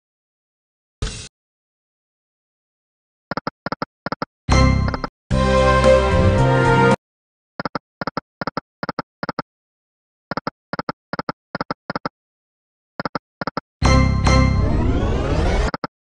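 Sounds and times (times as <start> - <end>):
game music: 4.5 - 7.0, 13.8 - 15.8.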